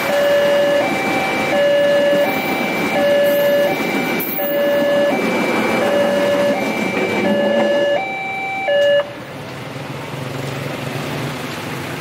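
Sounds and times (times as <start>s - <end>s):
train rumbling and clattering: 0.0s - 8.4s
two-tone crossing alarm: 0.0s - 9.2s.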